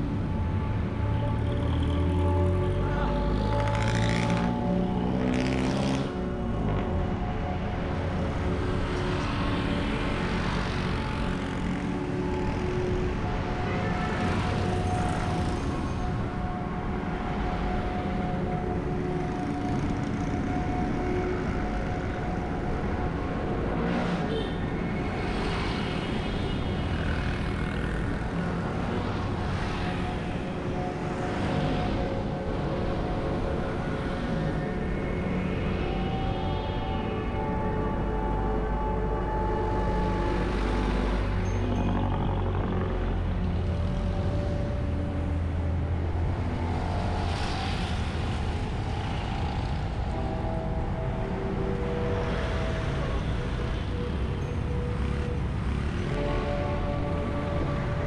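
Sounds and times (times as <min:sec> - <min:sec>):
motor vehicles passing: 0:01.1 - 0:07.1, 0:40.0 - 0:58.0.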